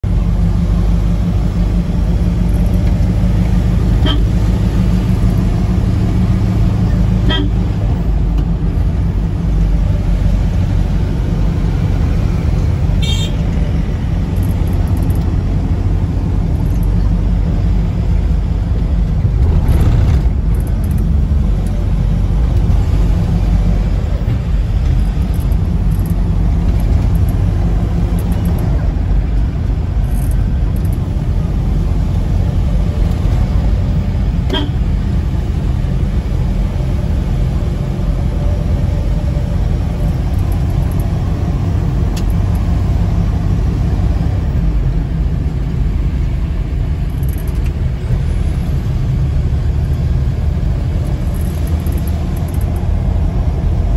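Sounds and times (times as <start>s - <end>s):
car engine and road rumble: 0.0s - 53.9s
car horn toots: 4.0s - 4.4s, 7.2s - 7.6s, 13.0s - 13.5s, 34.5s - 34.8s.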